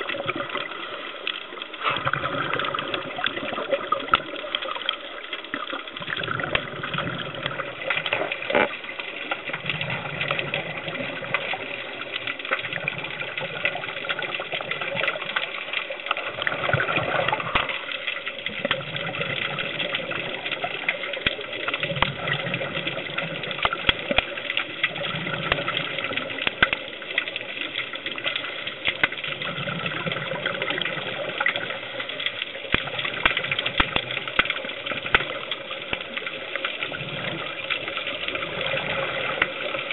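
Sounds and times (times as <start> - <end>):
crackling clicks: 0.0 - 39.9
regulator bubbles underwater: 0.0 - 39.9
steady water hiss: 0.0 - 39.9.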